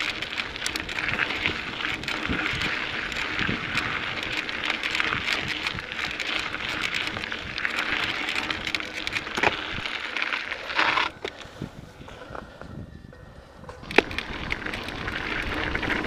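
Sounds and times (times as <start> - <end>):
bike tyres crunching on gravel: 0.0 - 12.4, 13.8 - 16.0
bike rattling: 0.0 - 12.7, 13.6 - 16.0.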